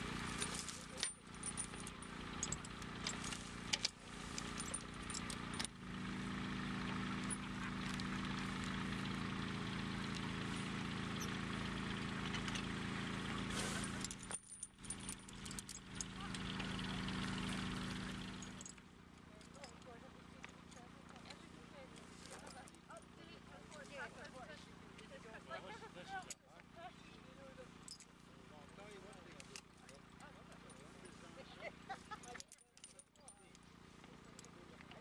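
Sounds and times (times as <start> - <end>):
tractor engine hum: 0.0 - 35.0
sharp clicks and clinks: 0.2 - 5.7, 12.2 - 12.8, 13.6 - 18.8, 32.1 - 35.0.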